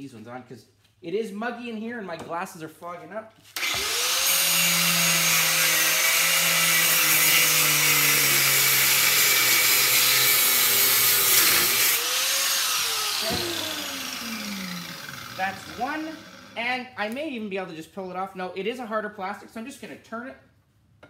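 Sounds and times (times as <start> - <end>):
angle grinder cutting metal: 3.6 - 16.6.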